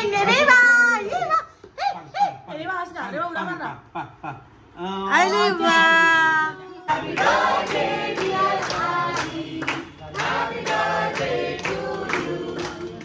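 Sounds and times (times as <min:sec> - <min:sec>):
group singing a birthday song: 0:05.5 - 0:13.0
people clapping in time: 0:07.1 - 0:13.0.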